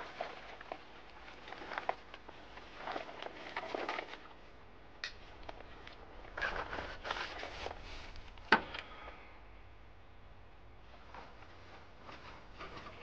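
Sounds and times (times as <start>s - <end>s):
waders and gear rustling: 0.0s - 4.6s, 5.3s - 8.5s.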